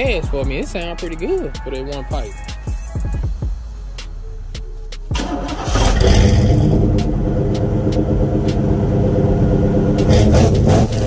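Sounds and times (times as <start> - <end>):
deep exhaust note: 5.1 - 11.0
pickup truck engine revving: 5.1 - 11.0.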